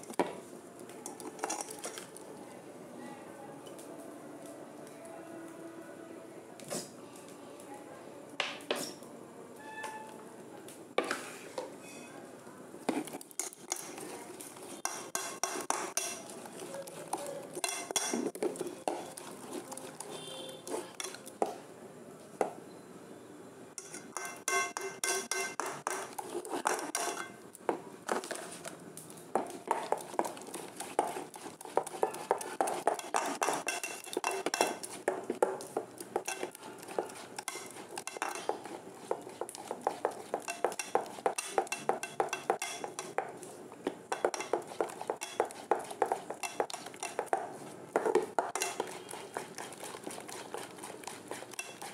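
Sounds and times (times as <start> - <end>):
batter beaten in metal bowl: 12.8 - 21.6, 23.8 - 27.5, 28.1 - 51.9.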